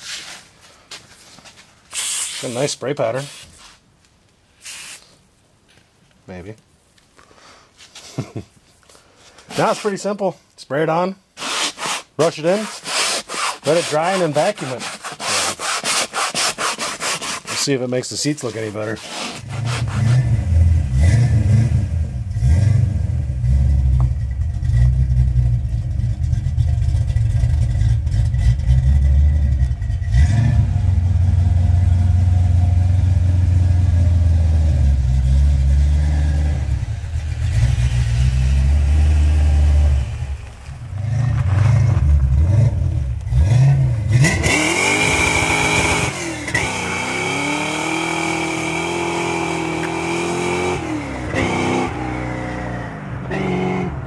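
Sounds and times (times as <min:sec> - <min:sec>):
car engine rumbling and revving: 0:18.8 - 0:54.0.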